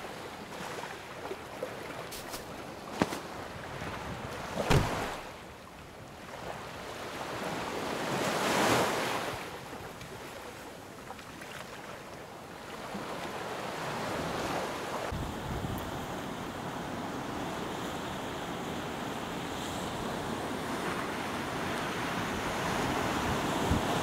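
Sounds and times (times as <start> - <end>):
wind: 0.0 - 24.0
short thump: 4.7 - 5.2.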